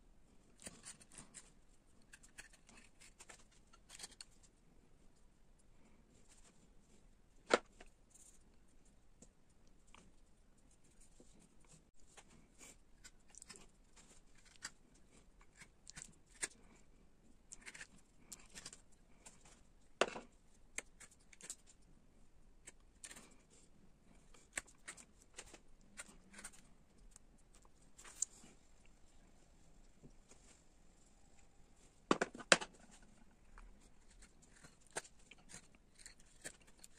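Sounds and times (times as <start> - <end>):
chisel slicing and scraping wood: 0.6 - 4.3, 13.0 - 16.6, 17.5 - 18.8, 24.4 - 26.6, 33.8 - 36.9.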